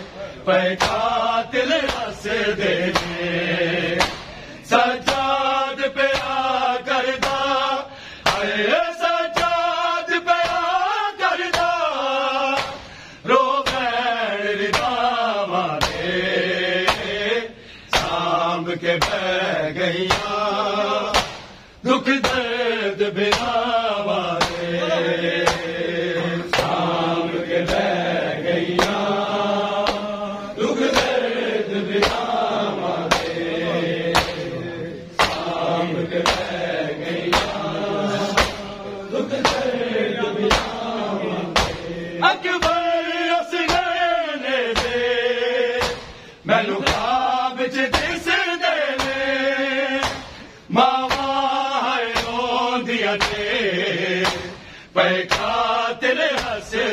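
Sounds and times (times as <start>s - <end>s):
men chanting in unison: 0.0s - 56.9s
hands slapping chests: 0.8s - 1.2s, 1.8s - 2.2s, 2.8s - 3.2s, 3.8s - 4.4s, 5.0s - 5.4s, 6.0s - 6.5s, 7.2s - 7.6s, 8.2s - 8.6s, 11.5s - 11.8s, 12.5s - 13.0s, 13.6s - 13.9s, 14.7s - 15.1s, 15.8s - 16.1s, 16.8s - 17.2s, 17.9s - 18.3s, 19.0s - 19.3s, 20.0s - 20.4s, 21.1s - 22.5s, 23.2s - 23.7s, 24.4s - 24.7s, 25.4s - 25.8s, 26.5s - 30.2s, 30.8s - 39.8s, 40.4s - 42.0s, 43.6s - 43.9s, 44.7s - 45.1s, 45.8s - 47.2s, 47.9s - 48.2s, 48.9s - 49.2s, 50.0s - 51.4s, 52.1s - 52.6s, 53.2s - 53.6s, 54.2s - 54.7s, 55.3s - 55.6s, 56.3s - 56.6s.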